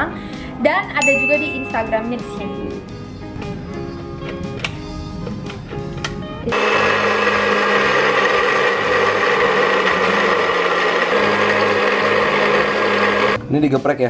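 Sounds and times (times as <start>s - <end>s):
background music with chimes: 1.0s - 2.7s
electric blender grinding: 6.5s - 13.4s.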